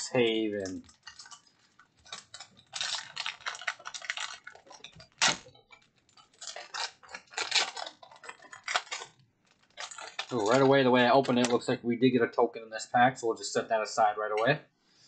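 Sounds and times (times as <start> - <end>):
foil wrapper crinkling: 0.0 - 11.6
foil wrapper ripping: 0.1 - 11.5.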